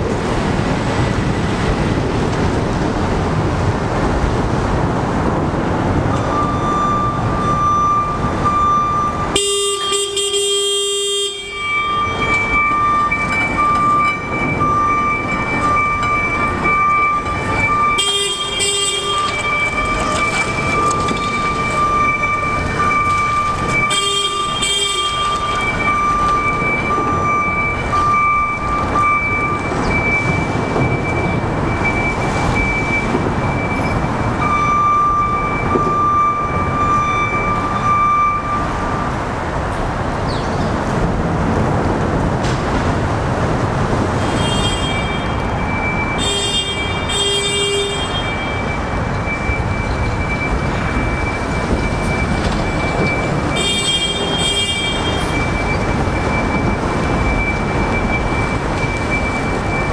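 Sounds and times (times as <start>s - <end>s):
horn sounding: 9.3s - 12.7s, 17.6s - 20.8s, 21.4s - 26.0s, 46.2s - 48.7s, 53.5s - 55.4s
steady high tone: 11.2s - 29.5s.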